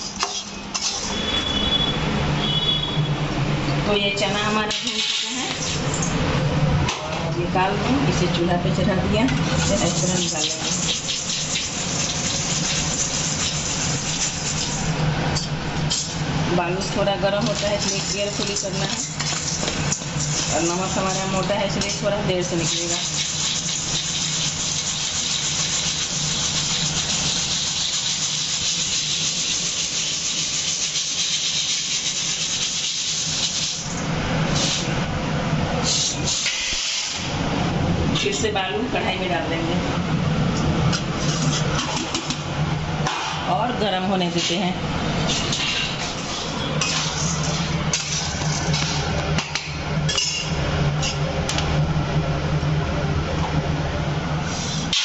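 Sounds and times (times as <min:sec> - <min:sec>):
sand and salt sifting through colander: 0:09.6 - 0:14.9, 0:17.4 - 0:33.9.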